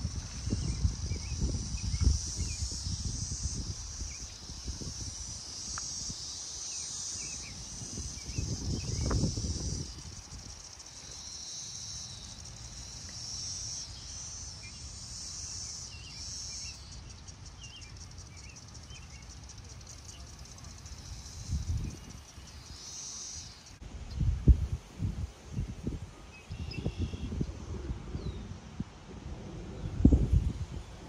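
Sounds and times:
insects trilling: 0.0s - 31.0s
faint bird chirps: 26.3s - 27.4s.

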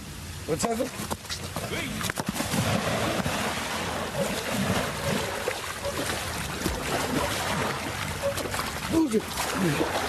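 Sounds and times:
water churning and sloshing: 0.9s - 10.0s
person plunging into water: 2.2s - 10.0s.

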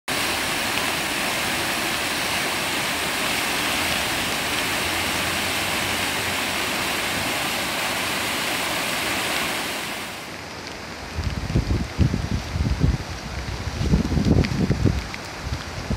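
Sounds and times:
river rushing through rapids: 0.1s - 11.1s.

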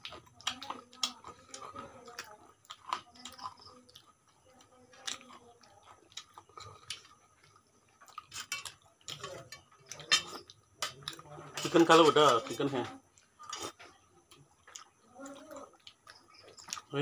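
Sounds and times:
people chewing: 0.0s - 17.0s
spoons clinking on steel plate: 8.3s - 12.6s.

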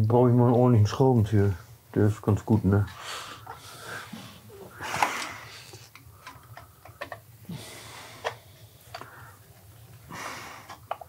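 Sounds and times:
loud breaths: 2.9s - 10.8s.

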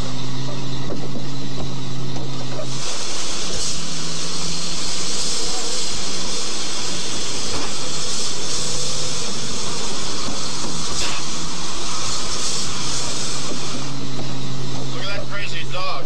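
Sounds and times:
steady loud hiss: 0.0s - 16.0s.

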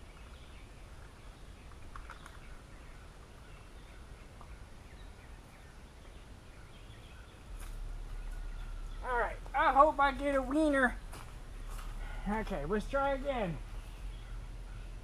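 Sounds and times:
low rumble: 6.7s - 15.0s.

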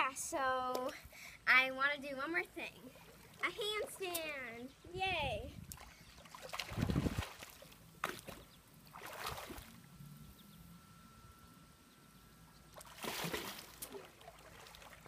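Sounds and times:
water lapping: 2.8s - 4.0s, 5.6s - 9.9s, 12.7s - 15.0s
pool water splashing: 5.8s - 10.0s, 12.7s - 15.0s.

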